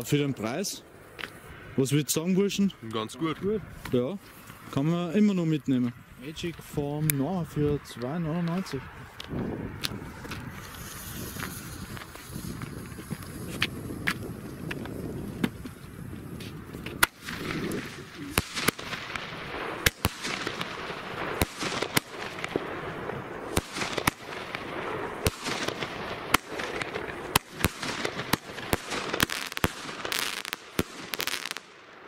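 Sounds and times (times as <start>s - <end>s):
firework bangs: 9.7s - 15.6s, 16.3s - 32.0s
steady hiss: 10.5s - 32.0s.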